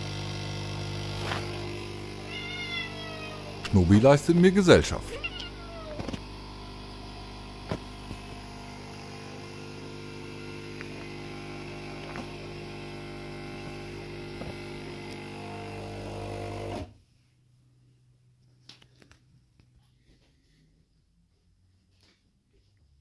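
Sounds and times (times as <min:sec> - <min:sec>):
electrical hum: 0:00.0 - 0:16.9.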